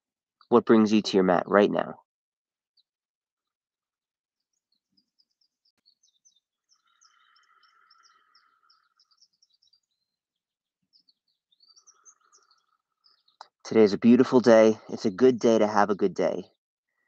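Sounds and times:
high bird chirps: 4.5s - 15.2s.

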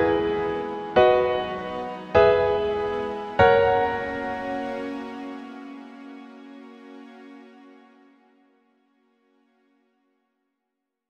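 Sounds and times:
piano chords ringing: 0.0s - 6.2s.

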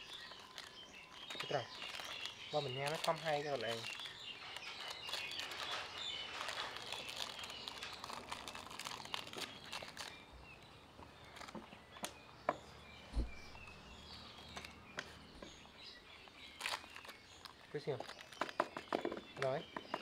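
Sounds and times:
plastic wrapper crinkling: 0.0s - 12.1s, 16.2s - 19.6s
faint bird chirps: 0.0s - 20.0s
soft thump: 13.1s - 13.6s.

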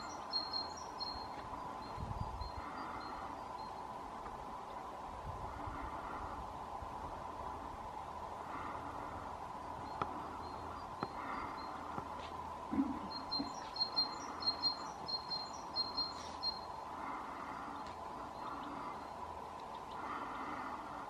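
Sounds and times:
bird twittering: 0.0s - 3.8s, 12.7s - 16.8s.

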